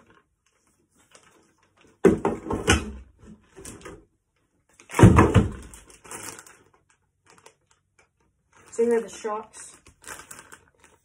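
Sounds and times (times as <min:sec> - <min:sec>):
parts knocking on cardboard box: 0:02.0 - 0:03.0
plastic bags rustling: 0:04.7 - 0:11.0.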